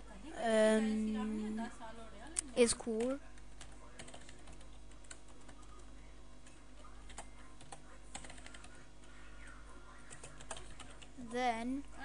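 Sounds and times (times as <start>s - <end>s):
faint background hum: 0.0s - 12.0s.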